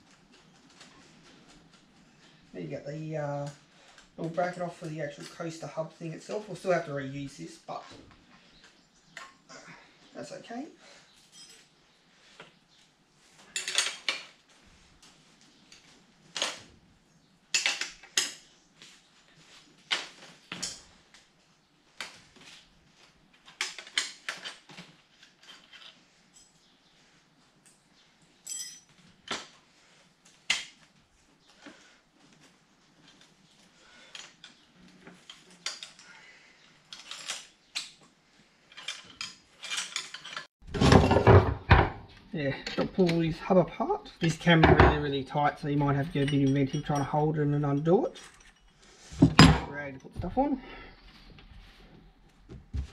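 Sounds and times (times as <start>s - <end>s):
metal tools clinking: 11.1s - 11.7s, 13.5s - 14.3s, 28.4s - 29.0s, 36.9s - 38.0s, 38.7s - 42.0s, 45.7s - 50.1s
metallic clicks of bike parts: 34.1s - 36.1s.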